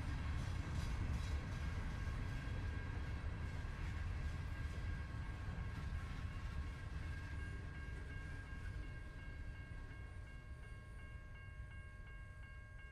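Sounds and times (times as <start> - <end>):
freight train rolling past: 0.0 - 12.6.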